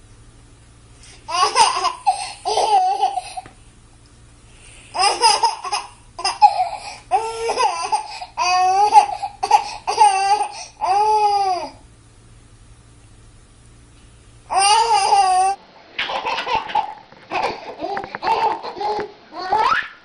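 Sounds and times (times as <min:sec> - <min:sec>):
baby laughing and squealing: 0:01.3 - 0:03.4, 0:04.9 - 0:11.7, 0:14.5 - 0:20.0.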